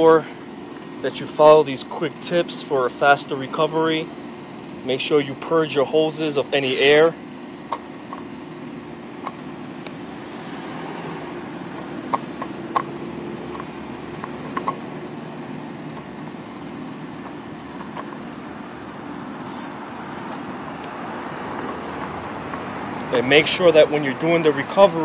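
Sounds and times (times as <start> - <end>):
gas hissing: 6.5 - 7.2, 19.4 - 19.7.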